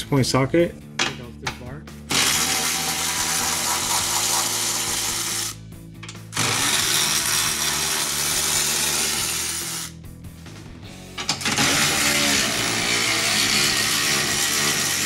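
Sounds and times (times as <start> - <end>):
power ratchet spinning: 2.1 - 5.6, 6.3 - 10.0, 11.4 - 15.0.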